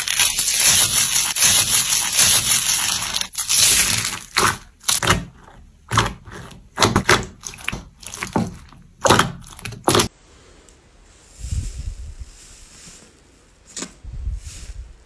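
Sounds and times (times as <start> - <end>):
foam beads crunching: 0.0 - 4.4
slime squishing: 0.0 - 10.1.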